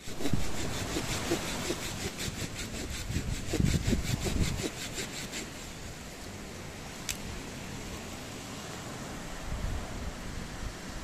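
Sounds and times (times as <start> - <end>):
hand saw cutting wood: 0.0 - 5.8.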